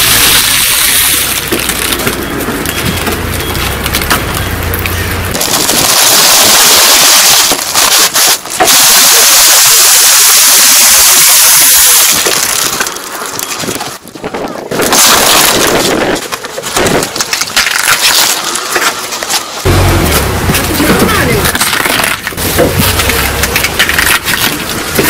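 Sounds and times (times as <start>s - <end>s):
low engine hum: 1.1s - 5.4s, 19.6s - 21.6s.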